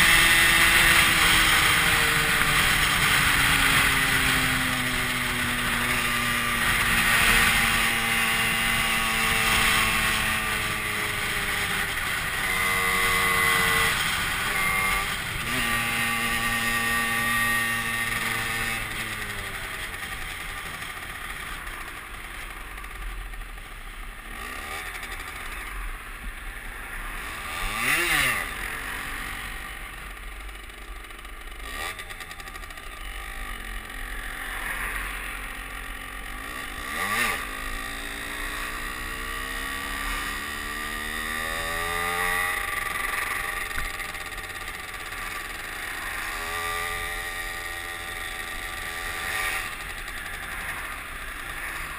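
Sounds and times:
moped engine accelerating: 0.0 - 51.9.

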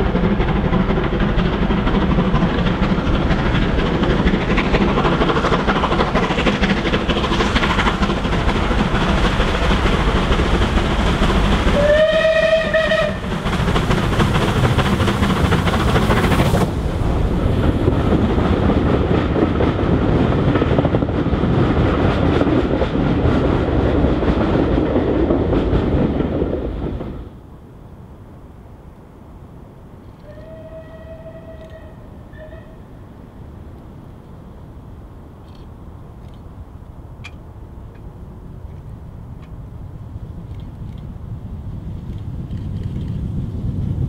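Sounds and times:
steam locomotive exhaust chuffing: 0.0 - 27.4, 30.1 - 34.0
locomotive whistle blast: 11.8 - 13.2, 30.2 - 32.8.

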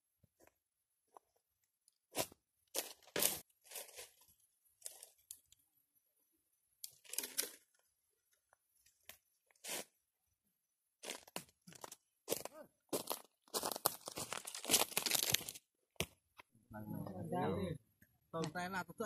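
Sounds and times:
dry branches crunching and snapping: 11.0 - 15.6.

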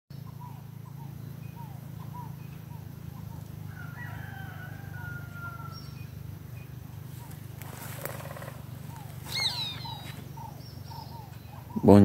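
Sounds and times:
steady low hum: 0.1 - 12.0
rooster crowing: 3.6 - 6.0, 7.6 - 10.5
short bird chirps: 9.2 - 10.2.

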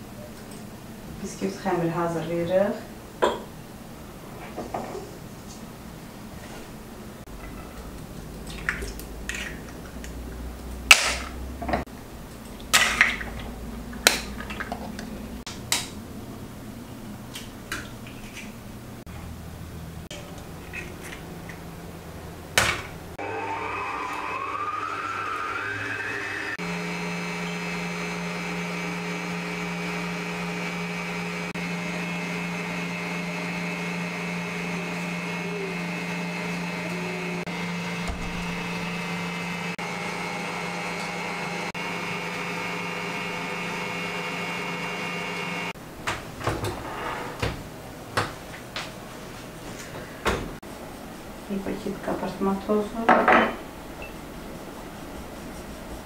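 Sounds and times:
stand mixer motor whining: 23.2 - 45.8.

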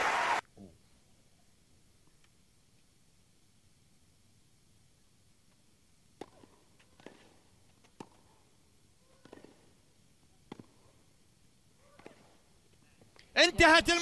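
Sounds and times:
racket hitting tennis ball: 6.2 - 7.3, 9.2 - 9.7, 10.5 - 10.8.

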